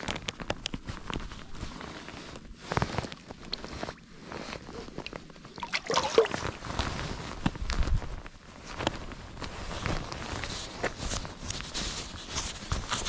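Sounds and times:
water sloshing and splashing: 0:03.1 - 0:07.3.

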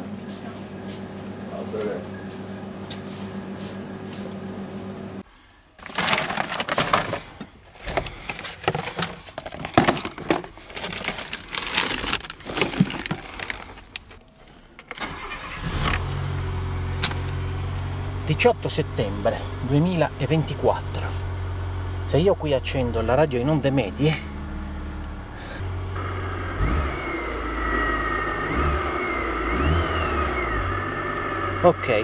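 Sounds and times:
clicks and rustles of handling: 0:05.8 - 0:14.6
car engine starting and idling: 0:11.5 - 0:32.0.

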